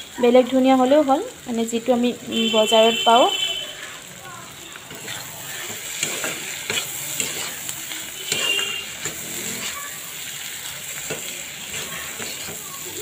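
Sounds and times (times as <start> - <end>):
food sizzling in oil: 0.0 - 13.0
spatula clacking on pan: 4.8 - 10.0, 10.8 - 13.0.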